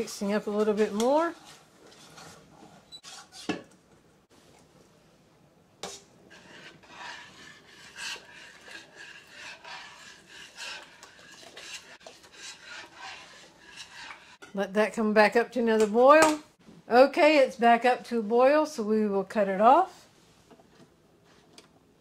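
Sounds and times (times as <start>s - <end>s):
spoon scraping and stirring in pot: 0.0s - 4.6s, 5.8s - 14.8s.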